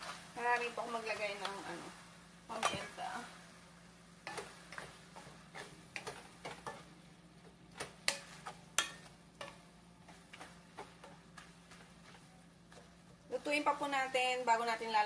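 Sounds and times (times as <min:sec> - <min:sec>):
low steady hum: 0:00.0 - 0:15.0
spoon scraping frying meat: 0:00.0 - 0:15.0
spoon knocking against pan: 0:07.7 - 0:11.5.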